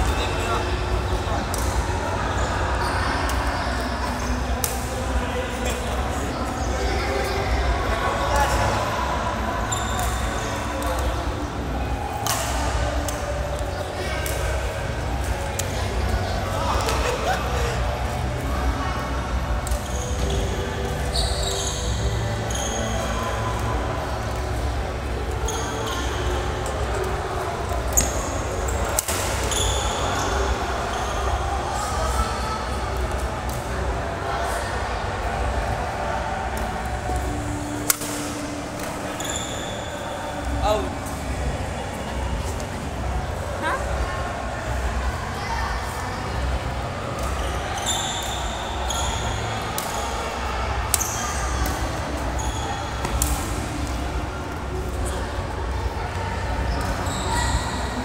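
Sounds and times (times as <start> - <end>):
low hum of hall: 0.0 - 58.0
shoes squeaking on court floor: 19.6 - 23.1, 27.9 - 31.3, 38.4 - 40.9, 47.2 - 50.1, 50.9 - 53.7, 56.7 - 58.0
rackets hitting shuttlecock: 37.8 - 39.0, 49.8 - 50.1, 53.0 - 54.0.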